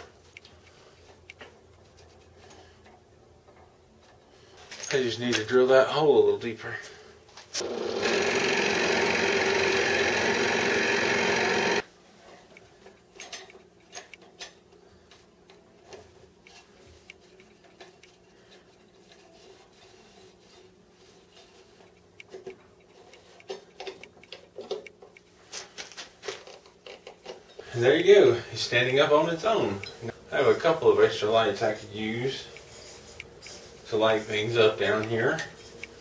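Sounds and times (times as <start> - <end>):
electric drill boring into wood: 7.6 - 11.8.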